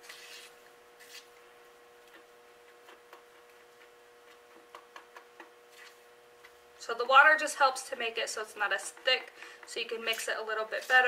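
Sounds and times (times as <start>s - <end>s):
faint steady hum: 0.0s - 11.0s
plastic spoon stirring in bowl: 8.6s - 11.0s.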